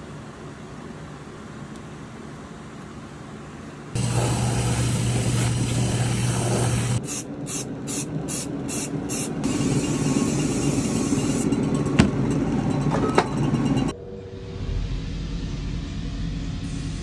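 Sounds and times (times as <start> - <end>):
low motor hum: 4.0 - 7.0, 11.2 - 17.0
rotating brush buffing boot: 4.0 - 7.0
aerosol spray hissing: 4.0 - 11.4.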